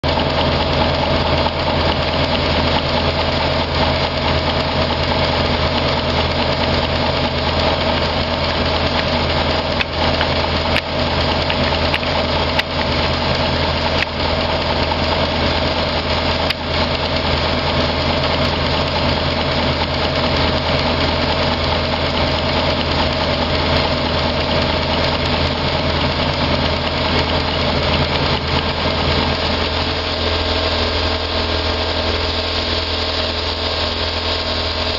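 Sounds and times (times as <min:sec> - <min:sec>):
model locomotive running: 0:00.0 - 0:34.9
sharp clicks: 0:08.7 - 0:12.9, 0:13.9 - 0:14.2.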